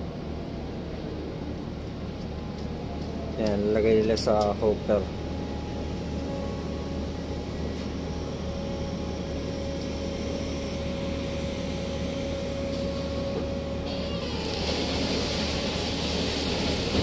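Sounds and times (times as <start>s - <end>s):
crane machinery drone: 0.0s - 17.0s
steady whining tone: 0.0s - 17.0s
rushing hiss: 13.9s - 17.0s.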